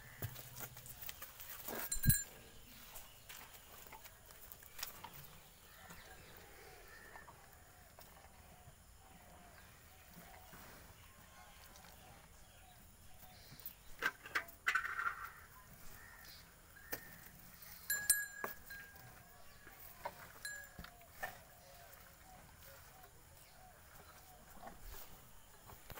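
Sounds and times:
metallic clink: 1.7s - 2.4s, 17.9s - 19.1s.

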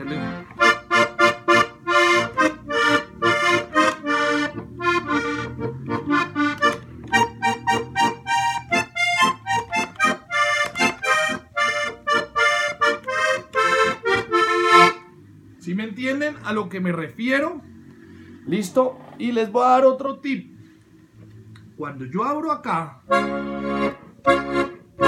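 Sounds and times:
button accordion chords: 0.0s - 16.6s, 23.0s - 25.0s
accordion bass notes: 0.0s - 25.0s.

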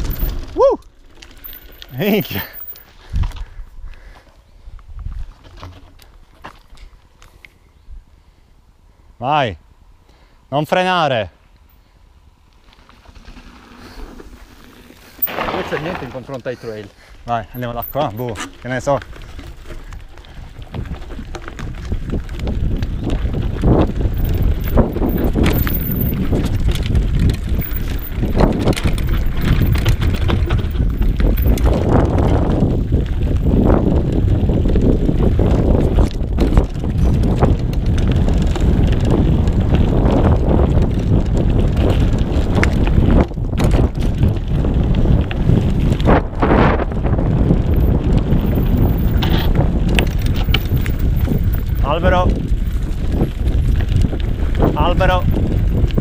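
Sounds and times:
wind buffeting microphone: 0.0s - 0.8s, 1.4s - 5.4s, 15.0s - 56.0s
tyres rolling on dirt: 0.0s - 3.6s, 12.5s - 56.0s
bike knocking and rattling: 0.0s - 7.2s, 12.6s - 56.0s.

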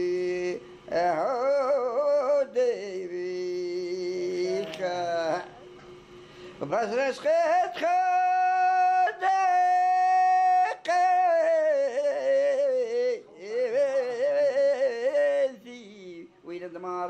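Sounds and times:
man singing unaccompanied: 0.0s - 5.7s, 6.6s - 17.0s.

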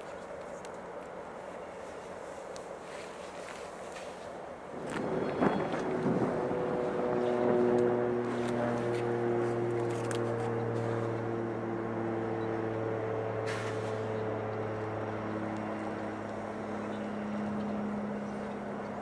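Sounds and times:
diesel locomotive engine drone: 0.0s - 19.0s
humming tones: 4.7s - 19.0s.

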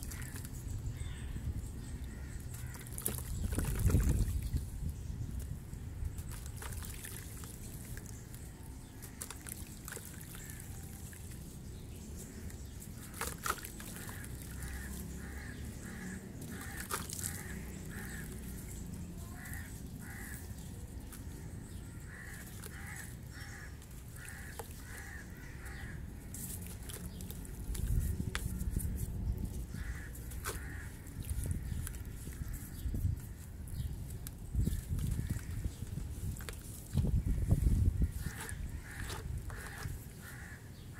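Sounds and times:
crow cawing: 0.1s - 0.4s, 2.1s - 2.9s, 14.0s - 18.4s, 19.3s - 20.5s, 21.9s - 26.1s, 29.7s - 32.7s, 38.1s - 40.9s
water dripping and trickling: 1.9s - 40.1s
water splashes: 6.1s - 11.5s, 12.2s - 21.1s.

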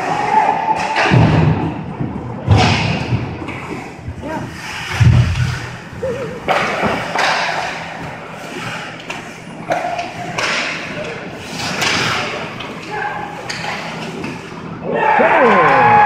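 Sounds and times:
voices shouting: 14.8s - 16.0s.

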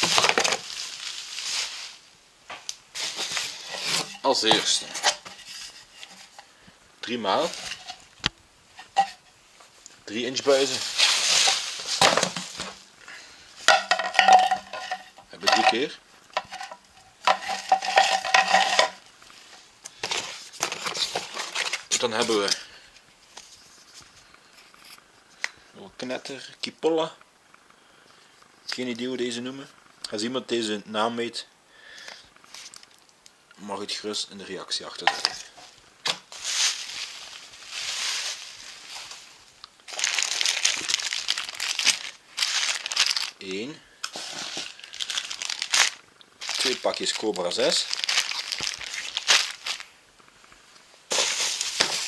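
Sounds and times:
plastic and cardboard rustling: 0.0s - 12.9s, 13.6s - 24.8s, 34.9s - 50.0s, 51.0s - 52.0s.

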